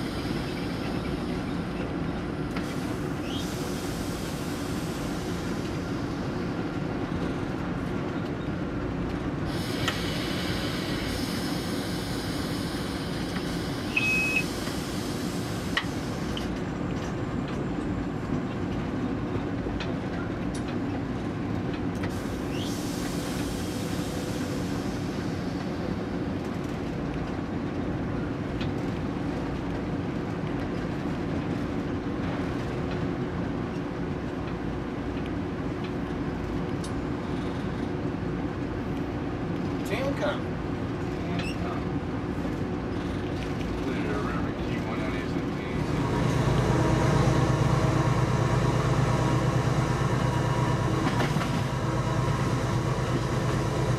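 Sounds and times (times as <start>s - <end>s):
locomotive engine rumble: 0.0s - 53.9s
train wheels on rail: 0.0s - 53.9s
short high beep: 13.9s - 14.4s.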